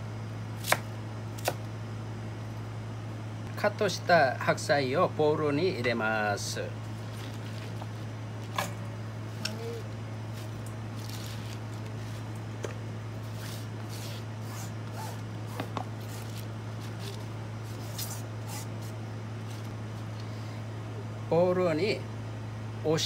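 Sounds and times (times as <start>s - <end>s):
steady low hum: 0.0s - 23.0s
crisp leaf rustles: 6.9s - 8.2s, 9.6s - 12.4s, 16.0s - 19.8s.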